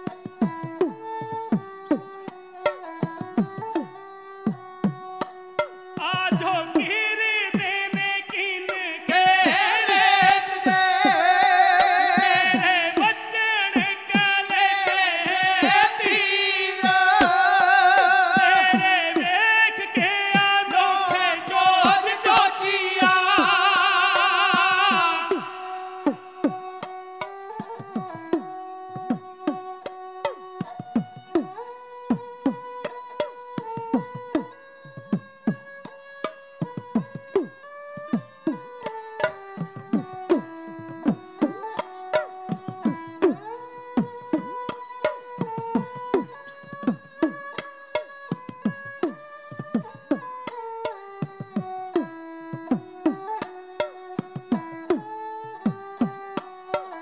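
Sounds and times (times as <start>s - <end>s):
sarangi melody: 0.0s - 57.0s
person singing: 6.0s - 28.4s.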